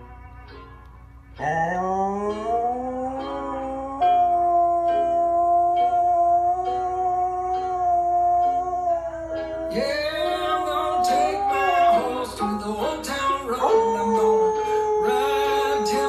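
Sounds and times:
dog howling: 1.4 - 12.6, 13.6 - 16.0
country rap song with guitar: 9.7 - 16.0.

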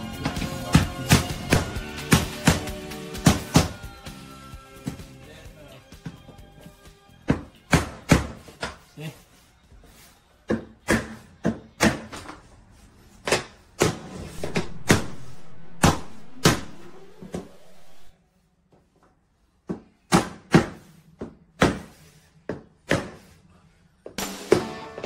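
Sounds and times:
steady background noise: 12.0 - 20.1.

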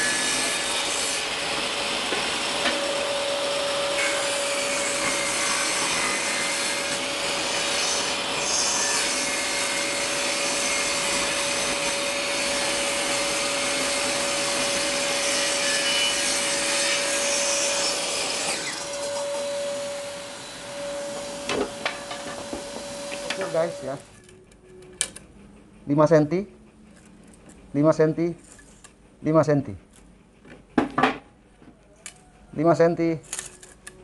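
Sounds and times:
saw motor tone: 0.0 - 24.1
table saw cutting wood: 0.0 - 24.1.

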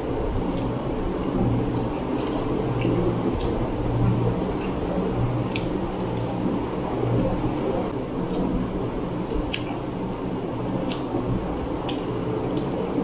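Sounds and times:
electric fan whirring: 0.0 - 13.0
chewing and lip smacks: 1.7 - 4.0, 4.6 - 6.4, 9.3 - 9.8, 10.7 - 11.1, 11.8 - 12.8.

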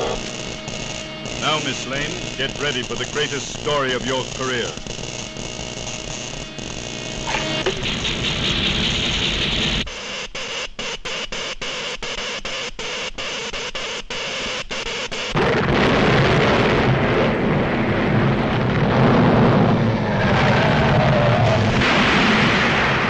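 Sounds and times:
stuttering hiss: 0.0 - 10.8
explosive blast: 15.4 - 23.0
heavy rumble: 15.4 - 23.0.

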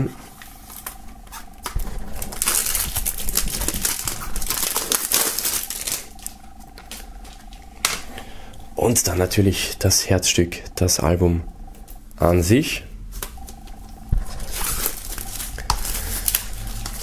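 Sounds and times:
plastic shrink-wrap crinkling: 0.4 - 8.1, 14.2 - 17.0.

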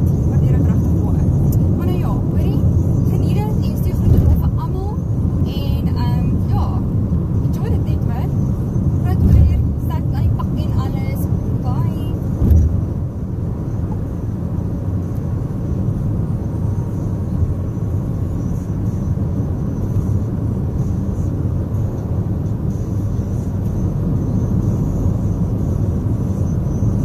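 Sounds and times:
car engine noise: 0.0 - 27.0
road and tyre rumble: 0.0 - 27.0
brief thump: 12.4 - 12.8.

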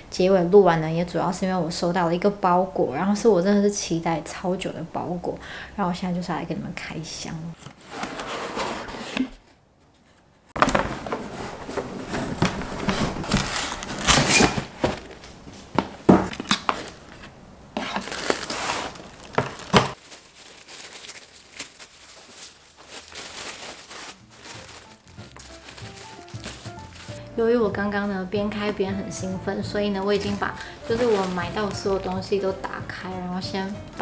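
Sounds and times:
cardboard rustling: 7.6 - 27.3, 30.0 - 32.4
paper crinkling and tearing: 10.5 - 15.3, 16.3 - 27.2, 30.1 - 32.1.

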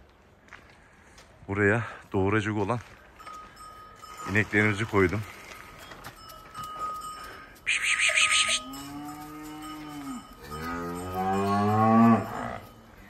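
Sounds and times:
cows mooing: 7.7 - 12.8.

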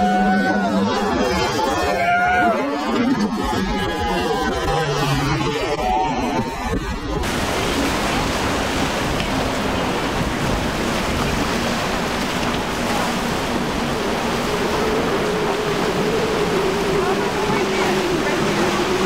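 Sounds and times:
churning water: 0.0 - 19.0
outboard motors droning: 0.0 - 19.0
wind rushing on microphone: 5.5 - 19.0.

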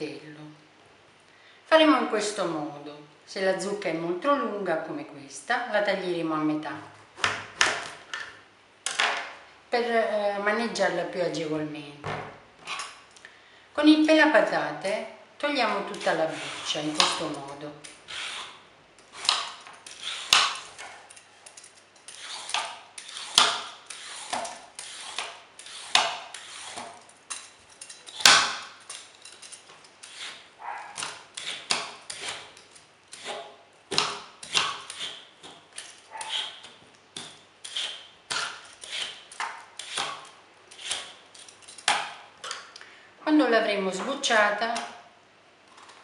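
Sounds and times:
vegetable peeler scraping gourd skin: 15.8 - 42.6.

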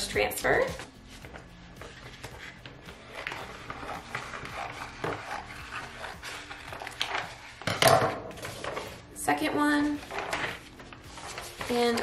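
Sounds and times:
plastic film crinkling: 1.5 - 7.7, 9.9 - 12.0.

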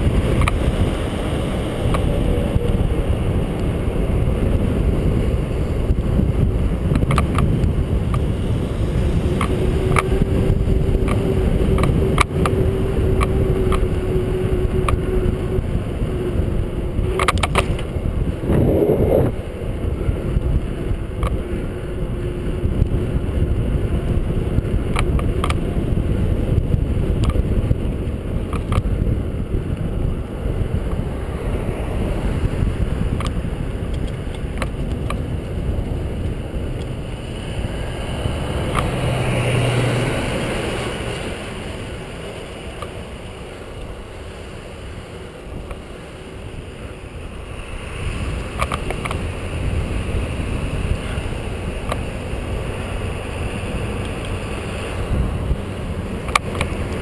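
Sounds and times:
bicycle tyre rumble: 0.0 - 57.0
wind buffeting microphone: 0.0 - 57.0
bicycle clicks and rattles: 6.0 - 8.3, 8.9 - 15.4, 16.4 - 18.4, 19.7 - 26.1, 27.1 - 29.9, 32.5 - 37.7, 48.4 - 49.8, 56.2 - 57.0.

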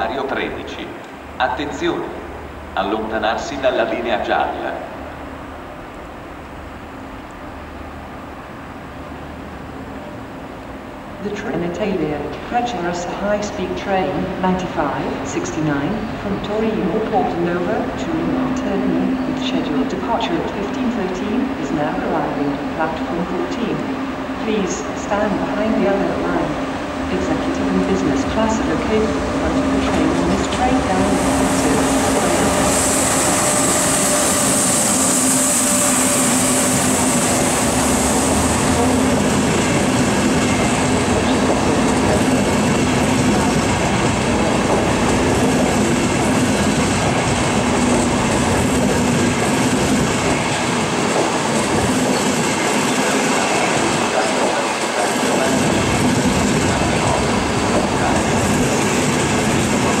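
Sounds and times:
train wheels rumbling on rail: 0.0 - 60.0
low hum: 15.7 - 43.7.

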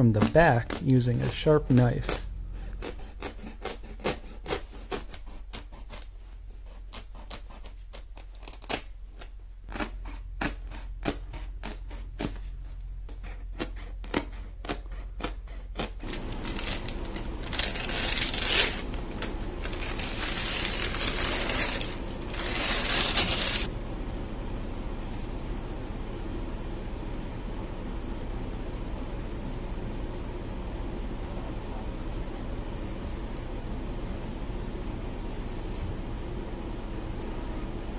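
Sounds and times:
carpet rustling and rasping: 0.0 - 23.7
carpet tearing: 0.0 - 23.7
knife cutting carpet backing: 0.0 - 23.7.

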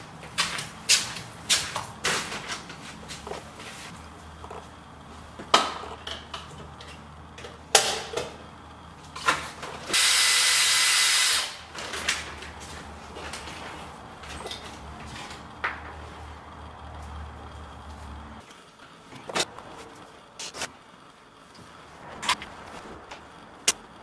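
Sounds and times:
power drill running: 9.9 - 11.7.

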